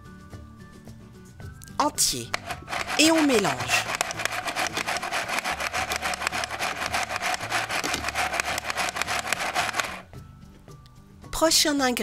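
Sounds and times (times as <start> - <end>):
toy hand mixer clicking rattle: 2.3 - 10.1.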